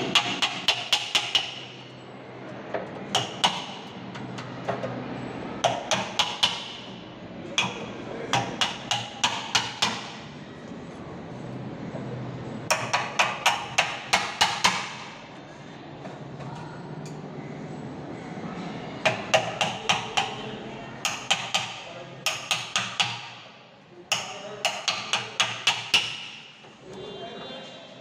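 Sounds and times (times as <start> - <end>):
hammer striking chisel handle: 3.1 - 3.9, 5.6 - 6.8, 7.6 - 10.2, 19.0 - 20.4, 21.0 - 23.4, 24.1 - 26.5.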